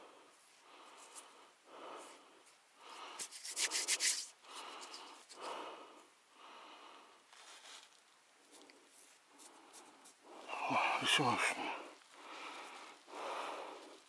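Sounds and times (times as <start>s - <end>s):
thumbs scraping dirt off coin: 3.2s - 5.3s.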